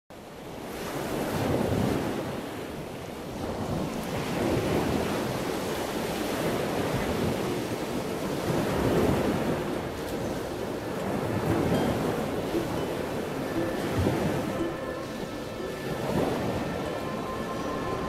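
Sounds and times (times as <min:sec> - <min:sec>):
waves breaking and washing in: 0:00.1 - 0:18.0.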